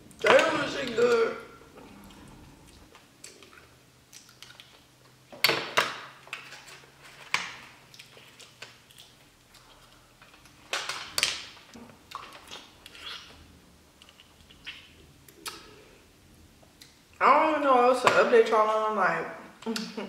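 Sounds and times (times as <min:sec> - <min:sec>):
soft eating sounds: 0:00.0 - 0:05.3, 0:06.3 - 0:10.7, 0:11.6 - 0:17.2
mussel shells clicking and cracking: 0:03.2 - 0:13.3.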